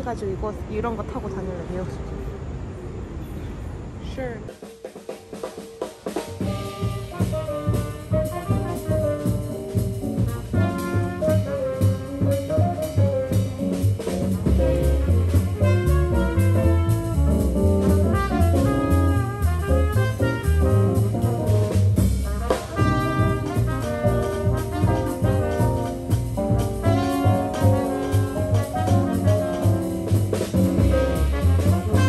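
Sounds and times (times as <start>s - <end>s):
drums: 4.0s - 32.0s
trombone and horns melody: 5.4s - 32.0s
upright bass: 6.4s - 32.0s.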